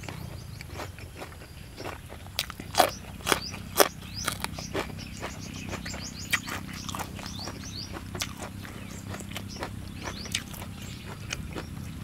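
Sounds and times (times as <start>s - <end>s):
chewing crunches: 0.0s - 12.0s
loud crunching bites: 0.0s - 12.0s.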